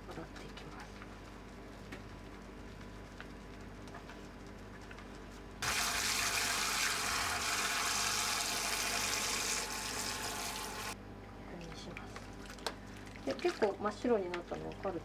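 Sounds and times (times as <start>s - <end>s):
tap running water: 5.6s - 11.0s.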